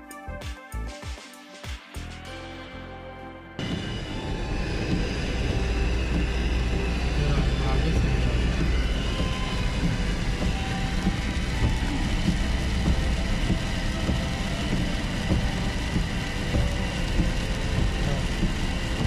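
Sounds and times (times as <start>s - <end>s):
road and tyre rumble: 3.6s - 19.0s
rain pattering on windscreen: 4.8s - 19.0s.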